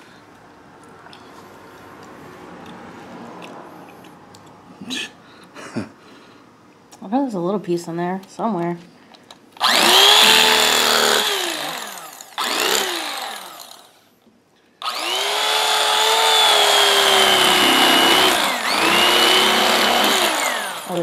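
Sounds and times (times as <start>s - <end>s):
electric carving knife motor whining: 9.6s - 14.0s, 14.8s - 21.0s.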